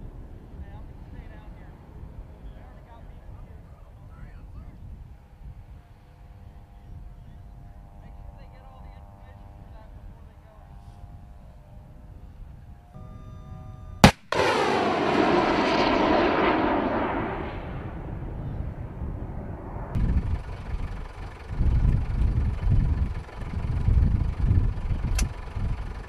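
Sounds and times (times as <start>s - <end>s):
low rumble with gusts: 0.0s - 26.0s
sharp click: 25.1s - 25.3s.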